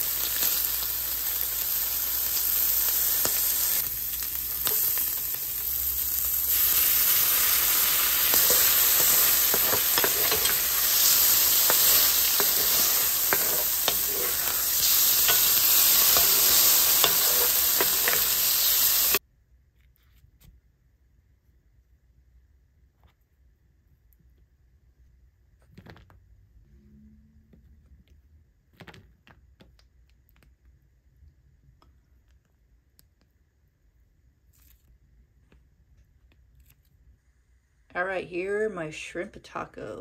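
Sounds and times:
shrimp sizzling in hot oil: 0.0s - 19.2s
wooden spatula scraping a pan: 7.2s - 19.2s.

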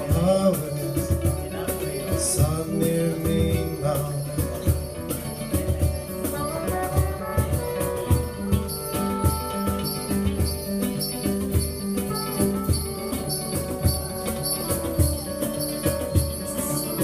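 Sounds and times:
acoustic guitars strumming: 0.0s - 17.0s
hand drum beat: 0.0s - 17.0s
jingling percussion: 0.0s - 17.0s
brass horn holding notes: 6.3s - 11.2s, 12.0s - 17.0s.

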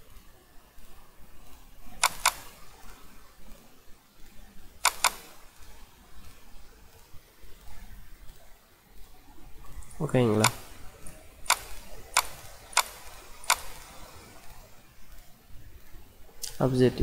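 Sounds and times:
computer mouse double-clicks: 2.0s - 2.7s, 4.8s - 5.4s, 10.3s - 14.6s.

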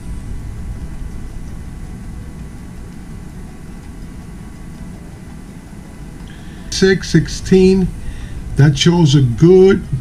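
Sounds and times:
faint high whine: 0.0s - 10.0s
low rumbling background noise: 0.0s - 10.0s.

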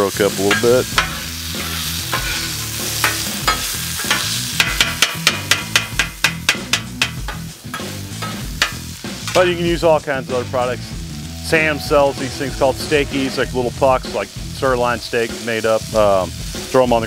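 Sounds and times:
meat sizzling on a griddle: 0.0s - 11.6s, 13.8s - 17.0s
spatula clacking on griddle: 0.4s - 9.5s.

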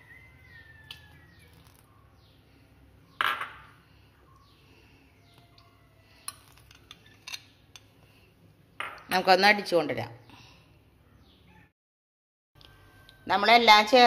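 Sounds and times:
spoon and bowl clinking on jar: 6.2s - 7.9s
spoon scraping bowl: 6.2s - 8.0s.

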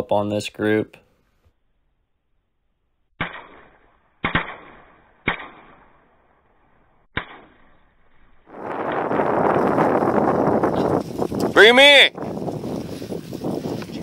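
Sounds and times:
shotgun shots with echo: 3.2s - 6.1s, 7.1s - 7.8s
loud wind noise: 8.5s - 14.0s.

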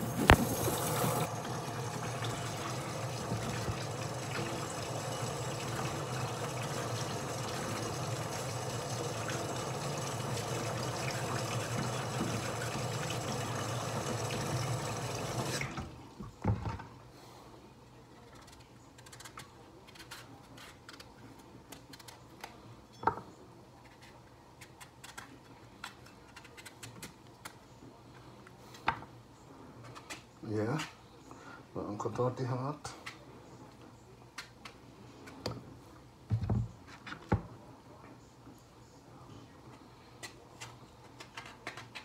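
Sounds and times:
running water rushing: 0.0s - 16.0s.

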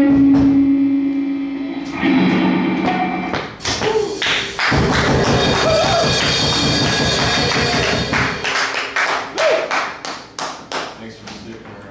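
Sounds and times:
loud guitar and electronic noise: 0.0s - 8.5s.

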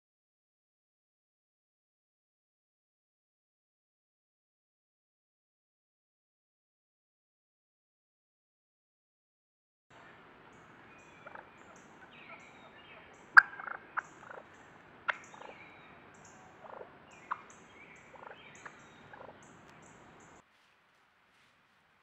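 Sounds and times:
faint birdsong: 9.9s - 20.5s
turkeys clucking: 10.0s - 20.4s
insects ticking: 11.1s - 20.4s.

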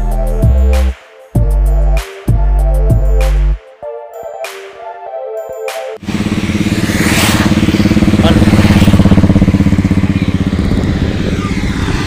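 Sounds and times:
lorry diesel engine throbbing: 6.0s - 12.0s.

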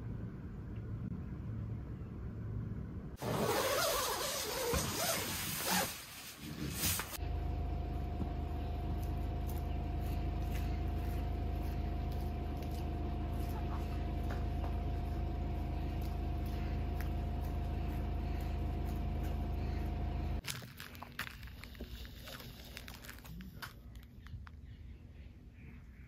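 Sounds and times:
engine idling: 7.2s - 20.4s.

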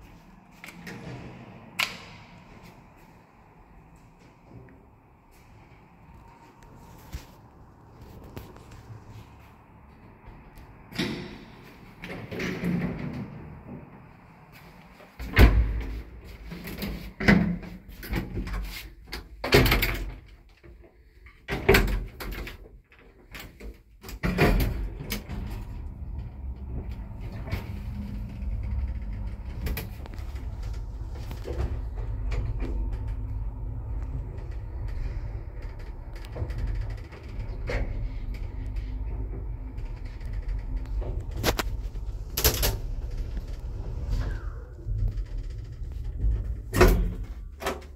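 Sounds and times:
lift rumbling and humming: 0.0s - 18.8s, 24.2s - 47.9s.

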